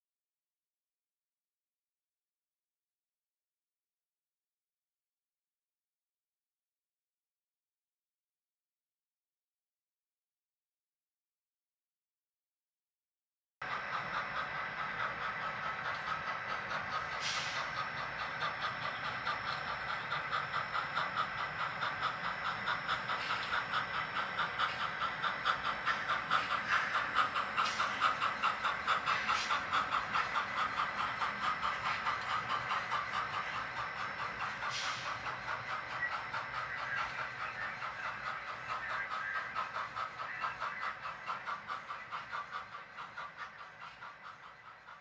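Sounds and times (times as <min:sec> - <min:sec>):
steam exhaust chuffs: 0:13.6 - 0:45.0.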